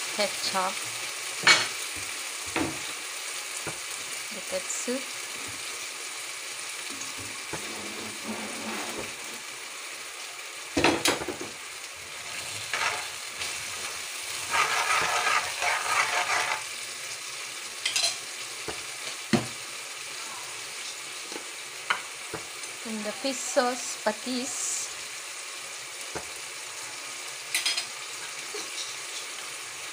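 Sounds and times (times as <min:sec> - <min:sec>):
sauce sizzling in a wok: 0:00.0 - 0:29.9
metal ladle stirring and scraping: 0:12.5 - 0:13.5, 0:14.3 - 0:16.7.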